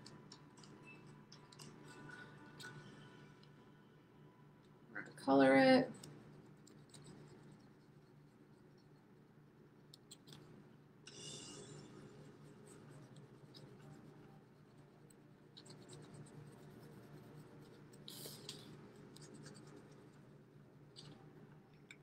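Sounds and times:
marker scribbling on paper plate: 5.9s - 9.1s, 11.1s - 20.3s.

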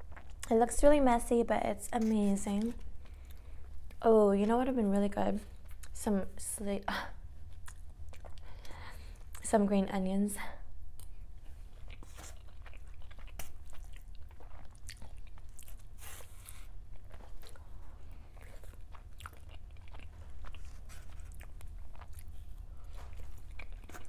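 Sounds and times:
crunchy chewing: 7.5s - 9.4s, 11.0s - 24.0s.

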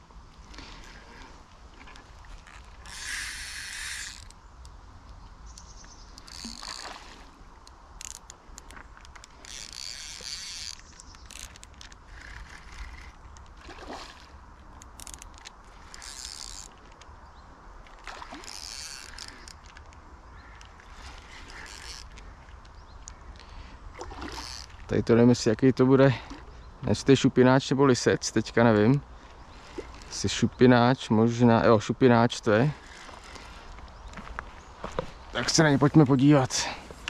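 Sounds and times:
fishing reel ratcheting: 2.4s - 4.8s, 6.2s - 6.9s, 7.6s - 13.6s, 14.7s - 17.0s, 18.0s - 19.9s, 20.6s - 22.2s, 24.2s - 24.8s.

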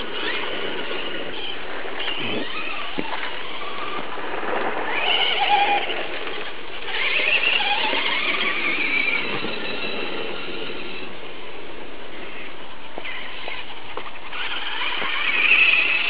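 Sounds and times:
rc trucks electric motors whining: 0.0s - 16.0s.

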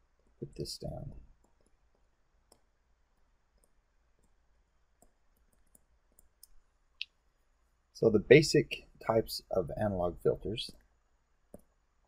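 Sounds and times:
stylus tapping tablet screen: 1.4s - 7.1s, 11.4s - 11.8s.

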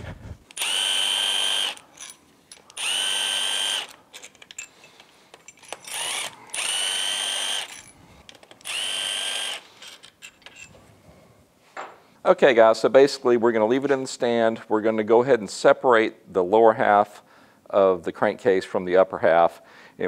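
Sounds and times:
impact driver motor whining: 0.4s - 4.0s, 5.7s - 8.0s, 8.6s - 9.7s
bolts clinking: 3.8s - 6.7s, 9.6s - 10.8s.

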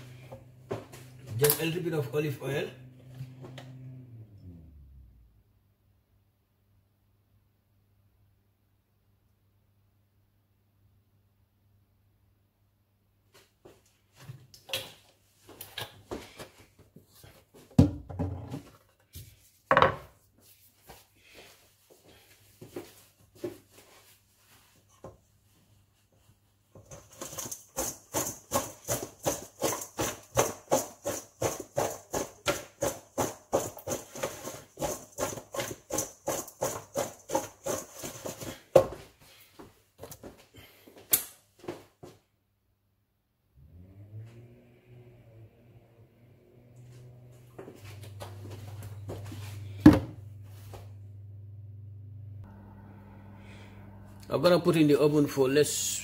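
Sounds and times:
fast even rattle in a bowl: 26.8s - 38.6s
vegetables tossed in a metal bowl: 26.8s - 38.7s.

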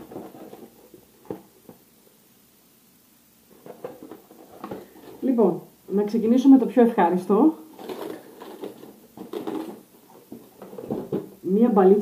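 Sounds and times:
paper packaging rustling: 0.0s - 1.8s, 3.5s - 5.4s, 7.7s - 11.3s.

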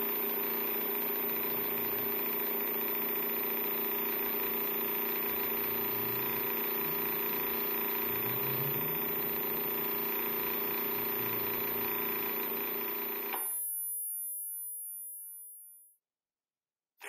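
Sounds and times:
dense electronic drone: 5.2s - 12.8s.

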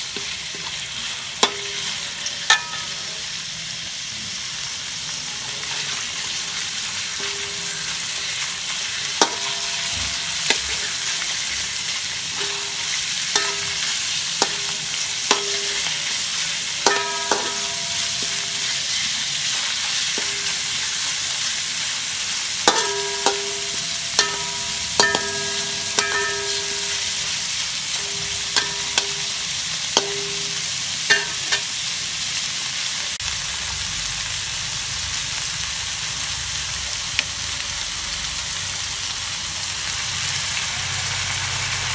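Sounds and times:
food sizzling in a wok: 0.0s - 41.9s
spatula clanking on wok: 1.4s - 3.2s, 7.1s - 21.1s, 22.6s - 31.8s.

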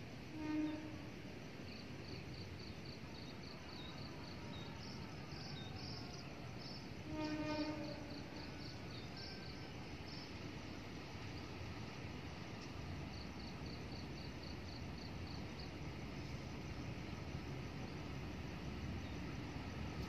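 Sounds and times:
distant train horn: 0.2s - 1.4s, 4.1s - 10.2s.

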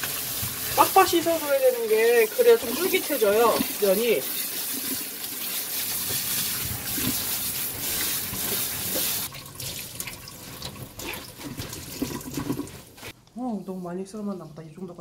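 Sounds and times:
tap water running onto noodles: 0.0s - 13.2s
hand scrubbing noodles: 0.0s - 14.6s
wet squishing of noodles: 8.3s - 13.4s.

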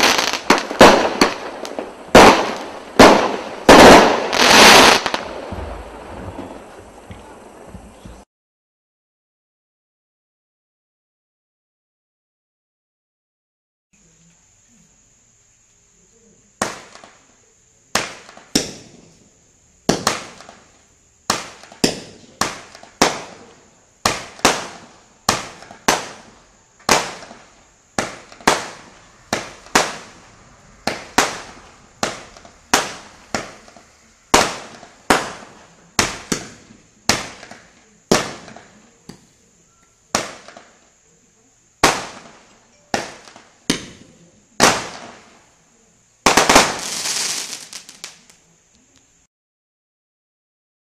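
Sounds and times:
firework cake bangs: 0.0s - 8.2s, 16.6s - 17.3s, 17.9s - 39.3s, 40.1s - 40.8s, 41.8s - 45.4s, 46.2s - 48.3s
steady high-pitched whine: 42.4s - 44.5s.

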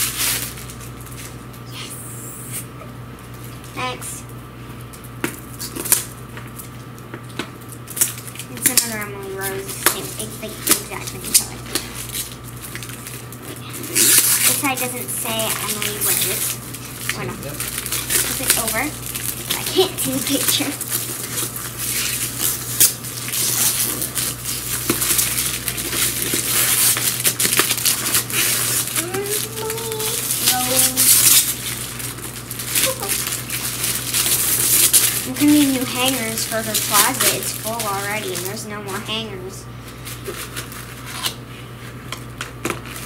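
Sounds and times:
wrapping paper crinkling: 0.0s - 1.6s, 4.8s - 43.0s
person's voice: 17.1s - 17.6s, 29.0s - 31.1s, 35.3s - 39.6s.

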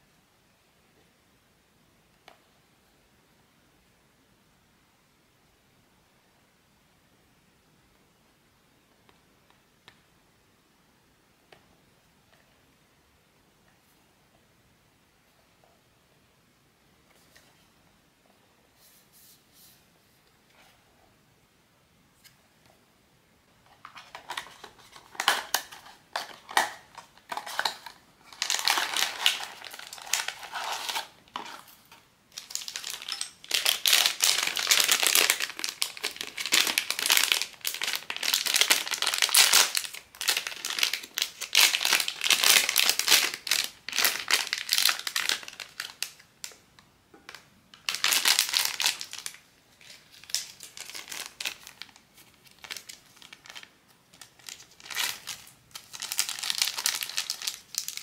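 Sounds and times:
packaging crinkling: 23.8s - 46.6s, 47.3s - 58.0s.

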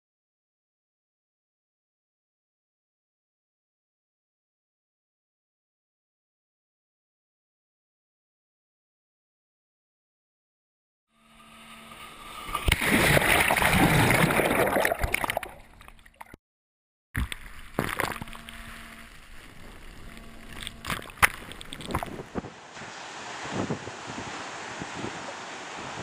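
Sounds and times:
seawater sloshing and gurgling: 11.8s - 16.4s, 17.4s - 26.0s
water splashing: 11.9s - 16.4s, 17.2s - 26.0s.

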